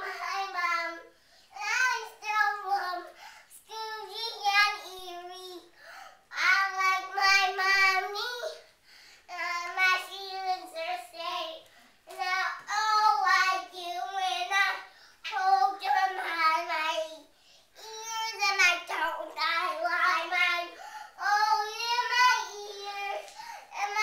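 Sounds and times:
girl singing in a high voice: 0:00.0 - 0:08.7, 0:09.3 - 0:24.0.

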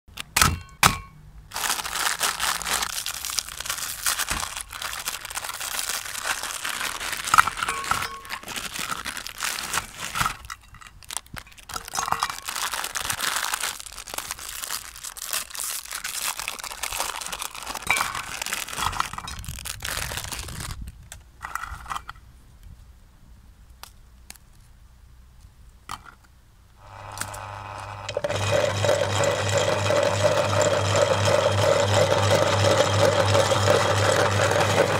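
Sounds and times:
plastic packaging crinkling and tearing: 0:01.5 - 0:21.1
steady mechanical hum: 0:26.2 - 0:34.9.

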